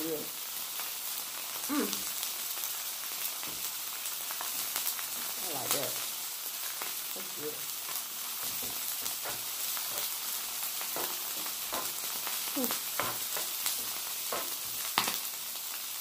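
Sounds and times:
food sizzling on a griddle: 0:00.0 - 0:16.0
utensil scraping the griddle: 0:10.8 - 0:12.0.

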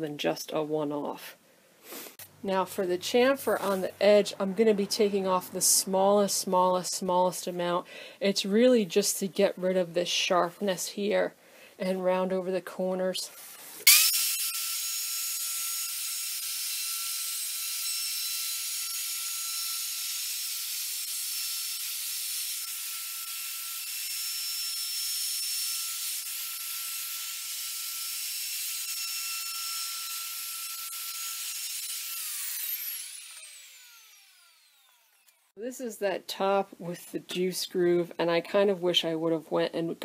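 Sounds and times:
router whining: 0:13.8 - 0:35.6.

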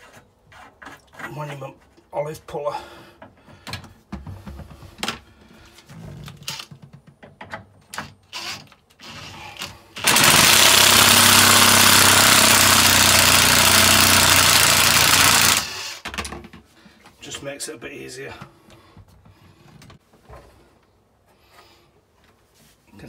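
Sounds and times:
electric motor running: 0:10.0 - 0:16.0.

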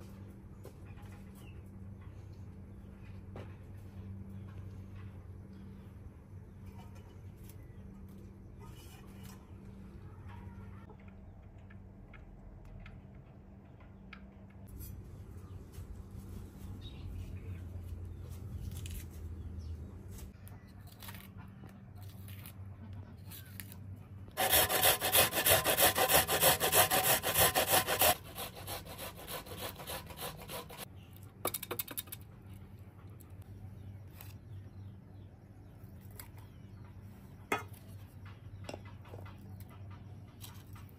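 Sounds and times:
onion grated on metal grater: 0:24.4 - 0:30.8.

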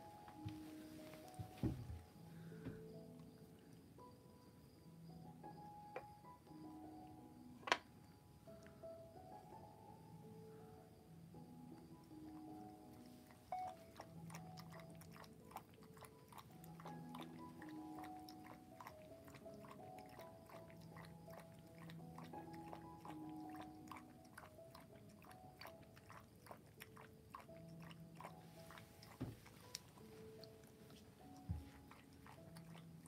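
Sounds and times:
soft music with held notes: 0:00.0 - 0:33.0
dog chewing food: 0:12.3 - 0:33.0.

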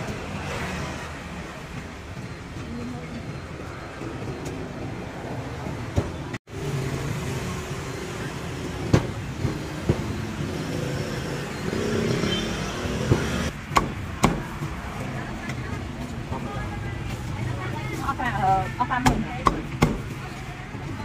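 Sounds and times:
street traffic: 0:00.0 - 0:21.0.

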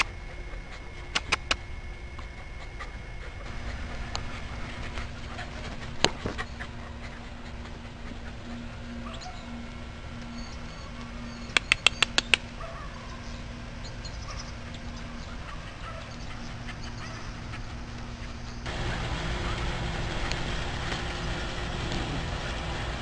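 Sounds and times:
steady low hum: 0:00.0 - 0:23.0
sharp clicks: 0:01.1 - 0:01.6, 0:11.5 - 0:12.5.

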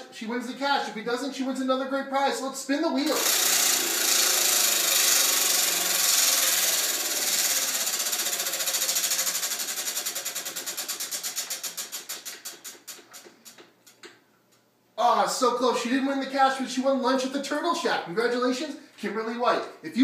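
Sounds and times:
prize wheel pointer ticking: 0:03.1 - 0:13.2.

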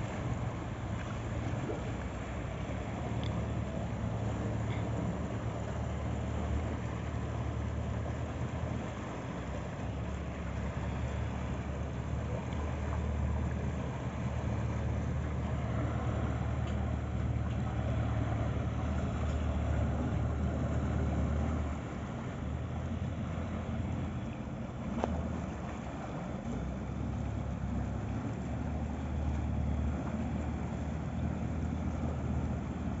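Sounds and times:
motorboat engine running: 0:00.0 - 0:33.0.

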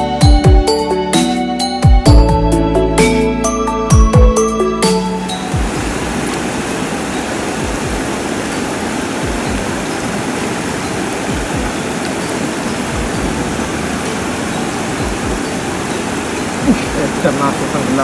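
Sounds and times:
low thumps on microphone: 0:12.9 - 0:13.6, 0:15.0 - 0:15.4.

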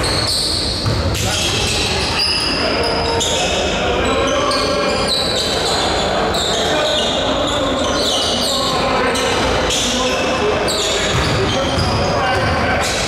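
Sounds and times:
basketball bouncing on court: 0:00.0 - 0:01.8, 0:11.1 - 0:12.9
voices on the court: 0:00.0 - 0:13.0.

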